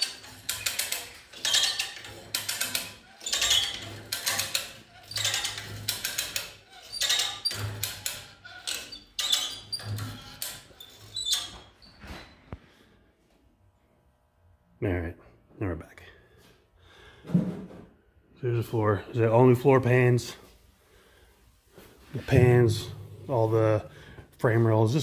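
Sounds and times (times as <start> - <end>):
rapid mechanical clicking: 0.0 - 10.7.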